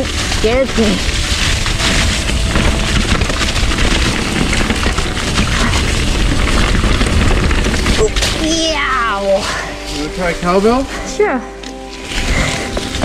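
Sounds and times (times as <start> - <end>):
wind buffeting microphone: 0.0 - 10.2
bike tyre noise: 0.0 - 11.2, 11.8 - 13.0
bike rattling over rough ground: 0.0 - 13.0.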